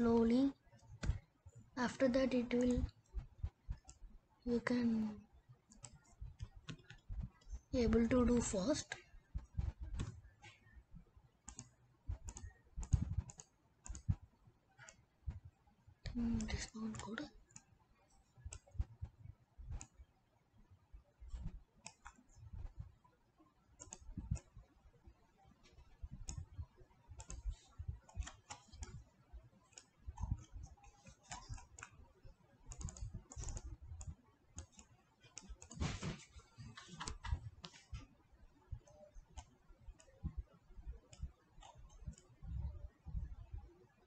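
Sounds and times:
mouse and keyboard clicks: 0.8s - 1.2s, 5.7s - 7.6s, 8.6s - 10.6s, 11.5s - 14.2s, 21.3s - 22.8s, 23.8s - 24.5s, 27.2s - 29.0s, 29.7s - 32.0s, 32.7s - 38.0s, 41.1s - 42.6s.

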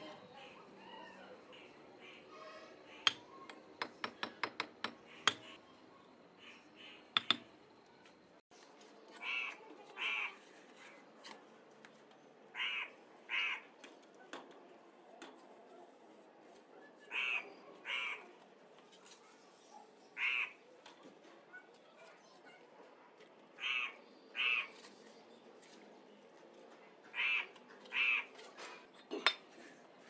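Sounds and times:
trowel tapping on brick: 3.0s - 5.5s, 7.2s - 7.5s
crow cawing: 12.6s - 13.7s.

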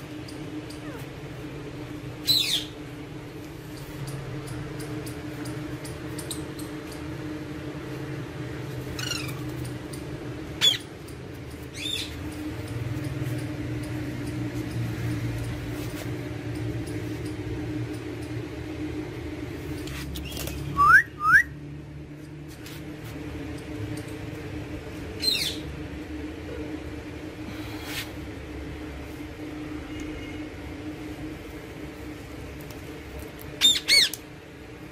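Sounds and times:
steady low hum: 0.0s - 34.9s
parakeet calls: 2.2s - 2.8s, 10.6s - 10.9s, 11.7s - 12.2s, 25.2s - 25.6s, 33.6s - 34.2s.

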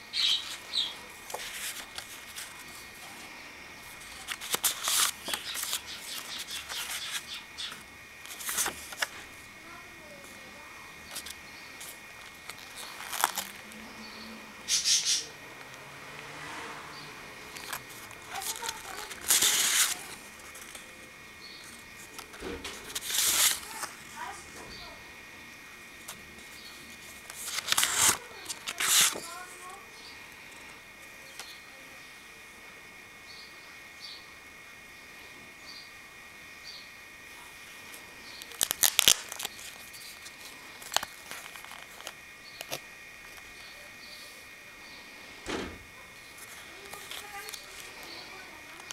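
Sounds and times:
cardstock pages rustling: 1.2s - 3.2s, 3.8s - 9.3s, 11.1s - 13.8s, 17.5s - 20.9s, 21.6s - 24.4s, 26.0s - 29.7s, 38.4s - 42.8s, 46.4s - 48.9s
paper taps and crinkles: 4.0s - 9.3s, 11.1s - 13.7s, 17.6s - 20.8s, 27.2s - 29.3s.

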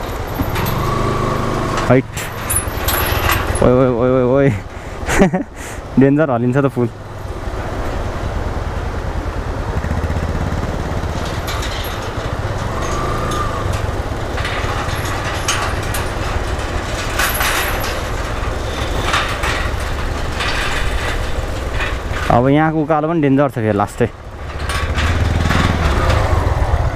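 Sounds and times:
metal bridge slats rattling: 0.0s - 5.5s, 6.1s - 26.9s
motorcycle engine running: 7.0s - 23.4s.

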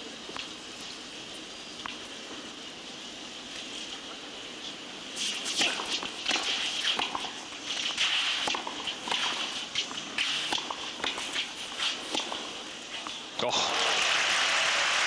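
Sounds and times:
shoes sliding on clay: 4.6s - 13.2s
racket striking tennis ball: 5.2s - 13.2s.

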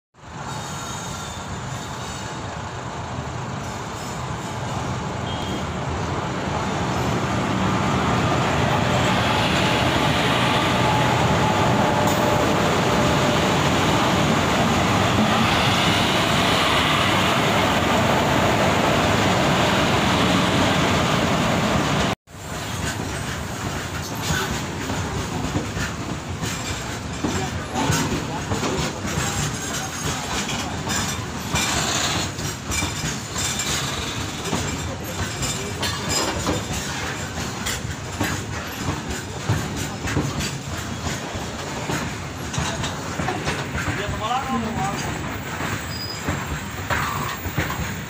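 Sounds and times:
goods train rumbling past: 0.2s - 48.0s.

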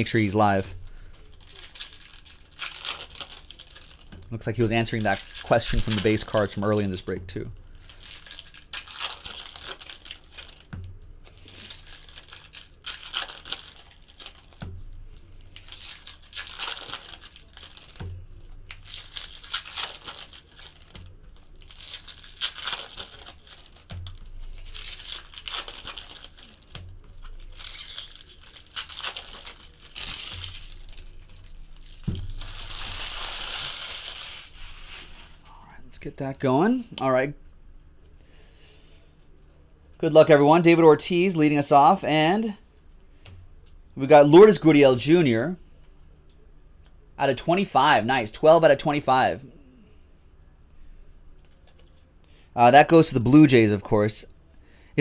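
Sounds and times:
cards riffled by hand: 0.0s - 7.0s, 7.9s - 35.4s
plastic wrappers crinkling and tearing: 0.0s - 35.5s, 51.3s - 52.2s.

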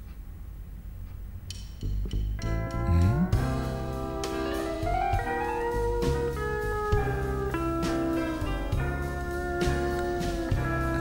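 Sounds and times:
bass line: 1.8s - 11.0s
slide guitar gliding notes: 2.5s - 11.0s.

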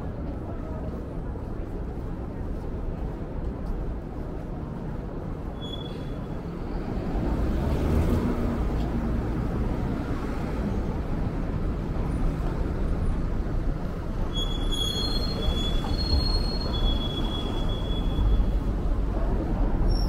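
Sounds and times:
street traffic rumble: 0.0s - 20.0s
high-pitched squeals: 14.2s - 18.5s.

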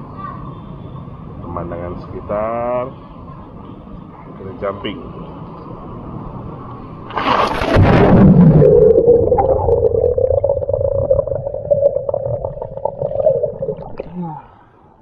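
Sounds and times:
splash into pool: 7.0s - 9.5s
underwater pops and bubbling: 7.0s - 14.2s
muffled underwater drone: 7.8s - 14.6s.

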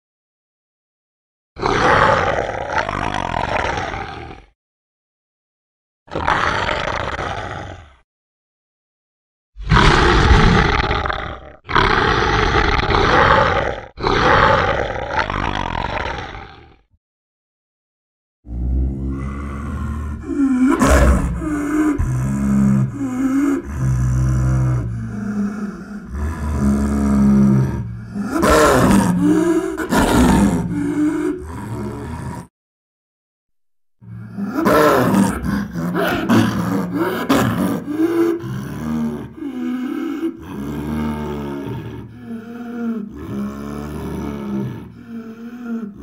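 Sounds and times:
tiger roaring: 1.6s - 4.5s, 6.1s - 8.0s, 9.6s - 16.9s, 18.5s - 32.5s, 34.0s - 46.0s.

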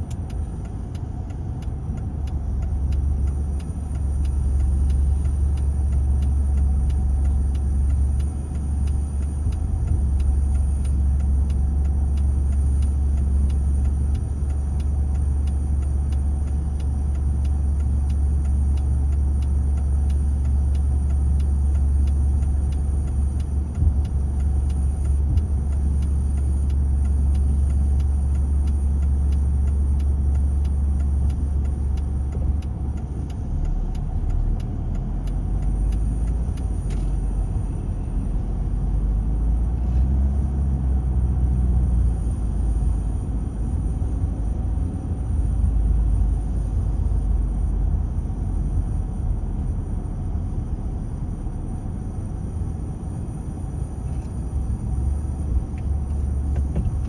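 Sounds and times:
faint regular ticking: 0.0s - 39.8s
car engine and road rumble: 0.0s - 57.0s.

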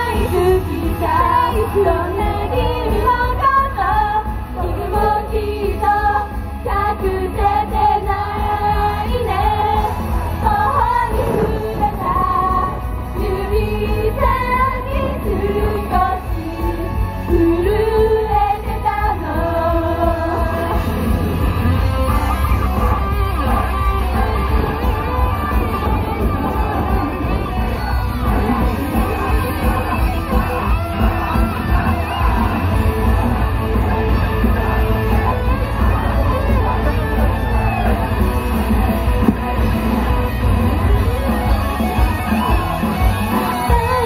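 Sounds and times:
girls singing pop: 0.0s - 21.8s, 43.5s - 44.0s
backing track with bass line: 0.0s - 44.0s.

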